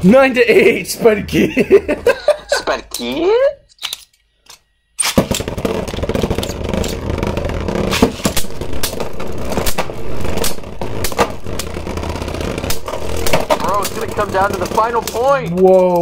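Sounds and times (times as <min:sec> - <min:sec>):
spinning tops grinding: 0:05.1 - 0:16.0.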